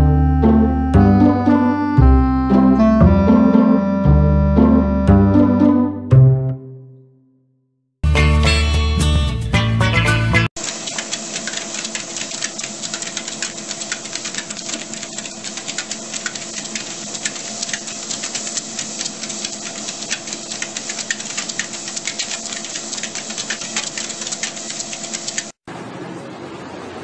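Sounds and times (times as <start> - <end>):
paws clicking on treadmill belt: 10.6 - 25.6.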